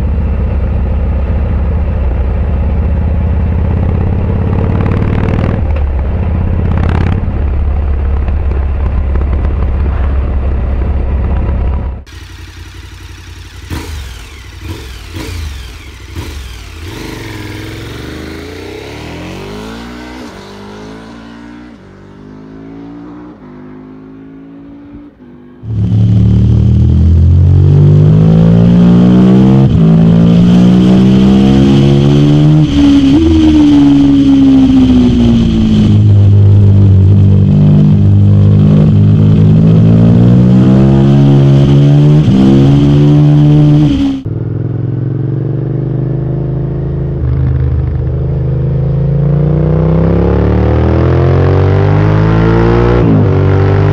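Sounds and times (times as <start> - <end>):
motorcycle engine accelerating: 0.0 - 53.9
motorcycle engine cruising: 0.0 - 53.9.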